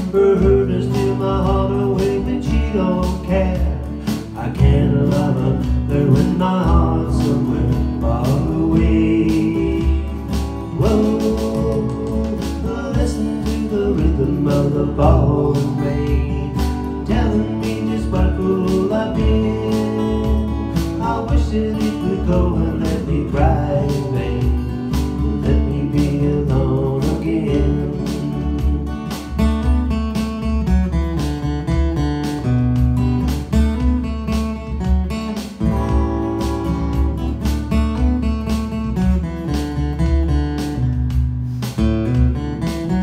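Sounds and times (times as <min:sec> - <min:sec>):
man singing: 0:00.0 - 0:29.7
acoustic guitar strumming: 0:00.0 - 0:43.0.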